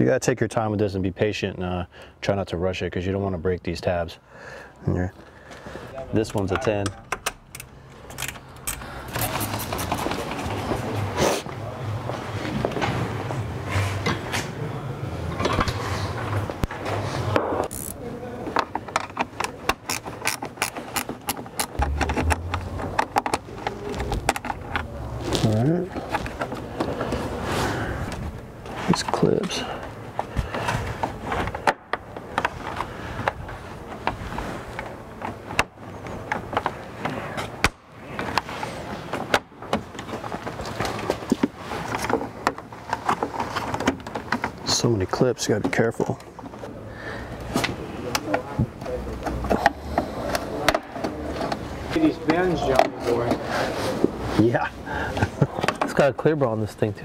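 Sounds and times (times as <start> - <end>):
low hum: 21.6 - 25.2.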